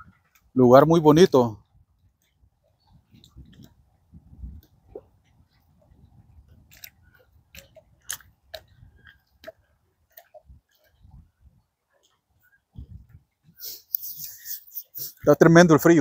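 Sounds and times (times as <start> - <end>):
wind rumble on microphone: 1.5 - 9.8, 10.4 - 11.7, 12.7 - 13.6.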